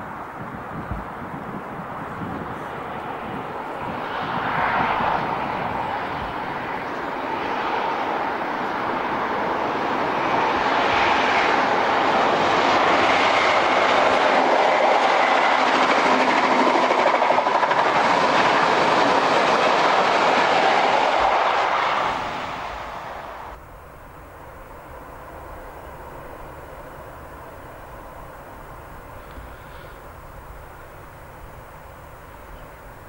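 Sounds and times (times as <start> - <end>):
train passing at speed: 0.0 - 23.6.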